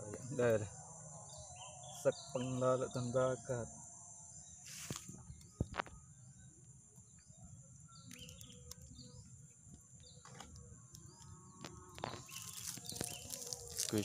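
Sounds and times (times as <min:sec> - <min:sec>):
high insect drone: 0:00.0 - 0:14.0
bird chirping: 0:00.2 - 0:03.5, 0:04.3 - 0:14.0
wire-mesh net rustling: 0:12.0 - 0:14.0.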